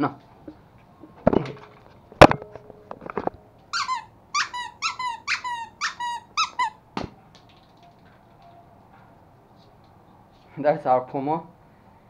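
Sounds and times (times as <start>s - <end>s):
puppy yelping: 3.7s - 6.8s.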